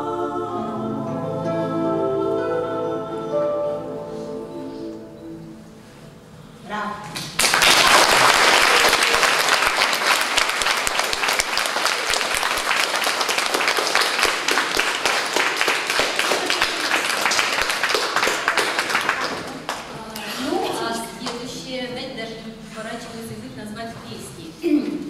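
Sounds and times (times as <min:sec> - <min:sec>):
audience applauding: 0:07.2 - 0:20.0.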